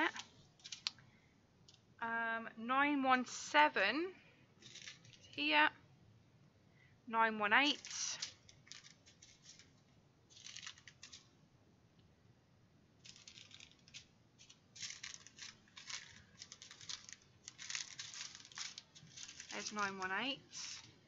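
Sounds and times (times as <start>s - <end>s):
plastic bags crinkling: 0.0s - 1.0s, 4.6s - 5.4s, 7.7s - 11.3s, 13.0s - 21.0s.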